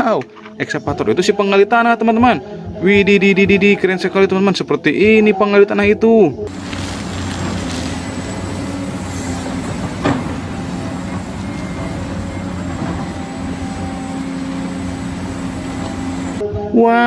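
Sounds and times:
excavator diesel engine running: 6.5 - 16.4.

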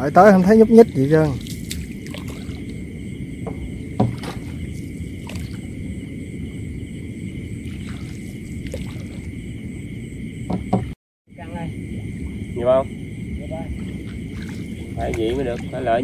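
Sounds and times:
night insects droning: 0.0 - 16.0
low rumble: 0.7 - 10.5, 11.3 - 16.0
short knocks: 3.4 - 4.6, 10.5 - 11.0.

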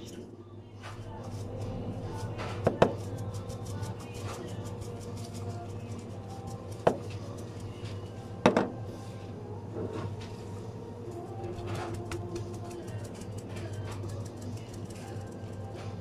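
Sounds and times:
steady low hum: 0.0 - 16.0
plastic tub knocking on counter: 8.4 - 8.7.

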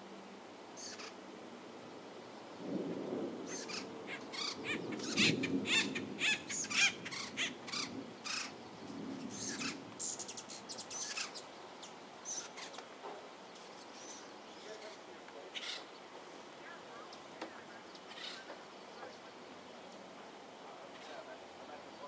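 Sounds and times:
distant thunder rumble: 2.6 - 10.0
small bird chirping: 3.5 - 15.0.

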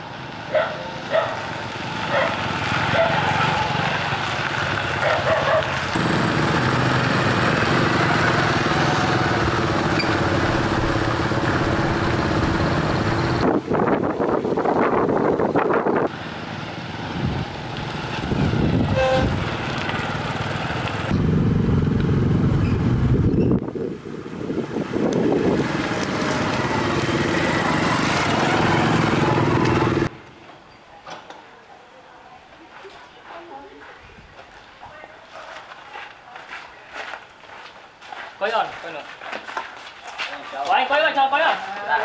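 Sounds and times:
motorbikes riding past: 0.0 - 13.4, 16.1 - 23.4, 24.6 - 30.1.

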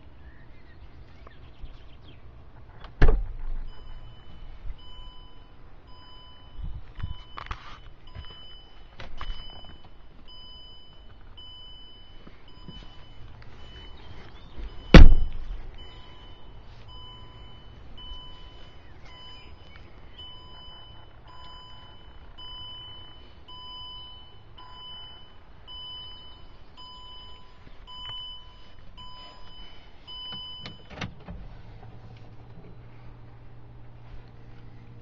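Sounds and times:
diesel engine cranking and idling: 0.2 - 35.0
dashboard warning chime pinging: 3.6 - 31.3.

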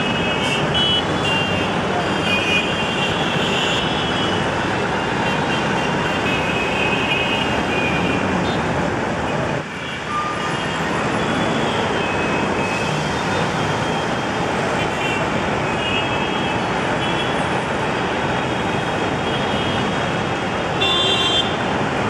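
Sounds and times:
vehicle horns: 0.0 - 8.6, 20.7 - 21.7
traffic engines din: 0.0 - 22.0.

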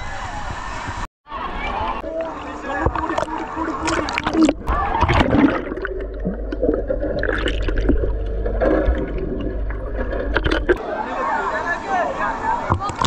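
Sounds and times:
water bubbling: 2.0 - 10.8
muffled underwater rumble: 2.7 - 10.8
underwater splashing clicks: 10.0 - 10.8.

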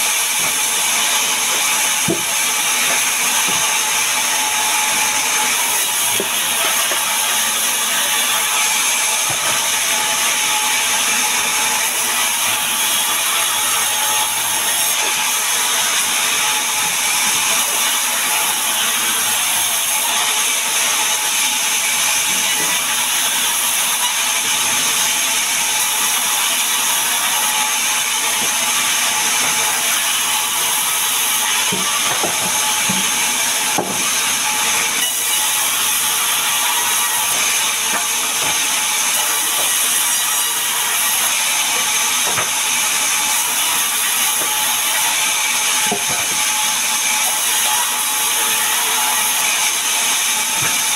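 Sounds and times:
band saw cutting a log: 0.0 - 50.9
wooden slabs knocking: 2.0 - 3.7, 31.6 - 34.2, 42.2 - 42.6.

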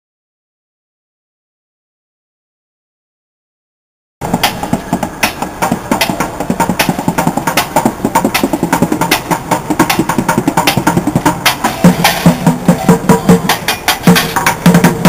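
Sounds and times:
sticks drumming on plastic buckets: 4.2 - 15.0.

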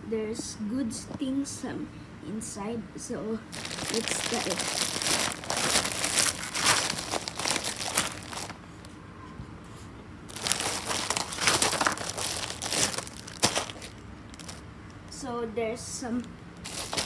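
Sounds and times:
bag crinkling and rustling: 3.5 - 8.9, 10.3 - 14.6, 16.6 - 17.0.

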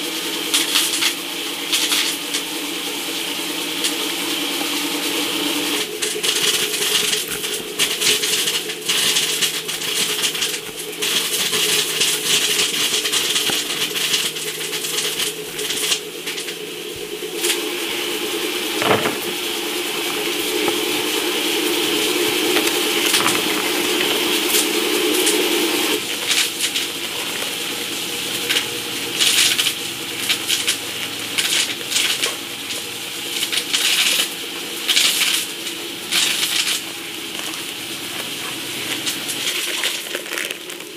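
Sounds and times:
steady low hum: 2.6 - 33.5
knife cutting corn: 5.8 - 17.6
corn kernels dropping: 22.4 - 25.3, 38.2 - 40.9.

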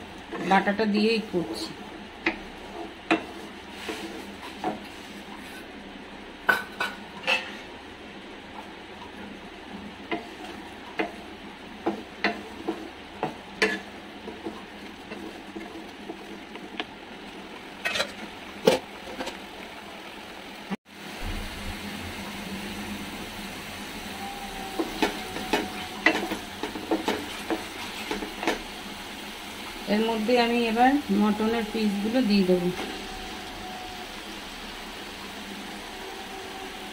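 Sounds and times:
wooden spatula scraping pan: 2.3 - 5.7
paste sizzling in oil: 20.9 - 36.9.

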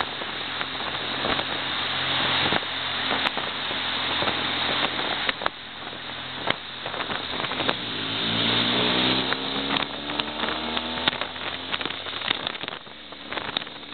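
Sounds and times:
motorcycle engine running: 0.0 - 13.9
wind and road noise: 0.0 - 13.9.

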